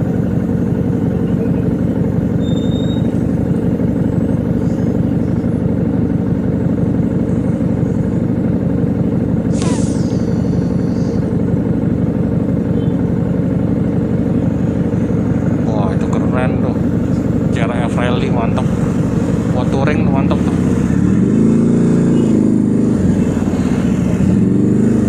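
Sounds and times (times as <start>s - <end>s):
motorcycle engine rumble: 0.0s - 25.0s
high squeal falling in pitch: 2.4s - 3.2s.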